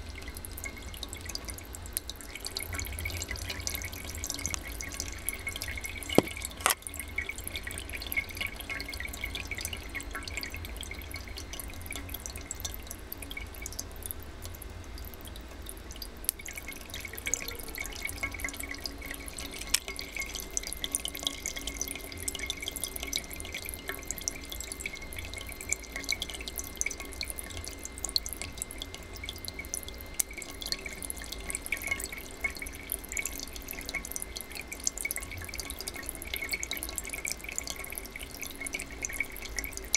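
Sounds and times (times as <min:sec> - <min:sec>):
water dripping into tin cans: 0:00.0 - 0:39.9.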